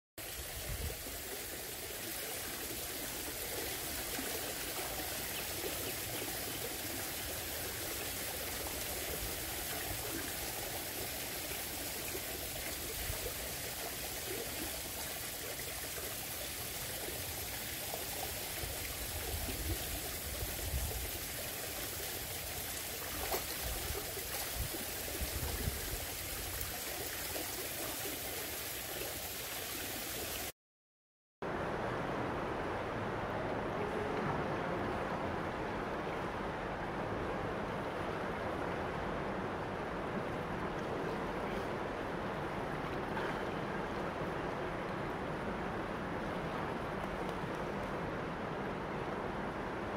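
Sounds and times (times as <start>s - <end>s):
running water rushing: 0.2s - 30.5s.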